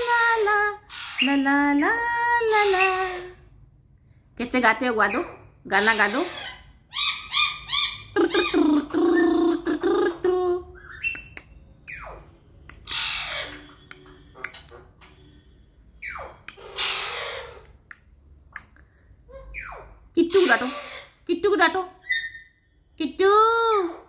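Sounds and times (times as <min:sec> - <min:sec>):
parrot squawking: 0:00.0 - 0:03.5, 0:04.8 - 0:15.3, 0:16.0 - 0:17.9, 0:19.3 - 0:22.8
parrot talk-like babble: 0:05.1 - 0:11.0, 0:16.2 - 0:17.8.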